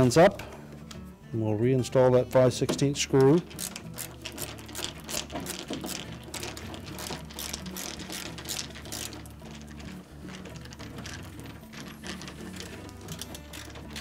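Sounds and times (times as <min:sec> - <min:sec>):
nut driver ratcheting clicks: 0:03.2 - 0:14.0.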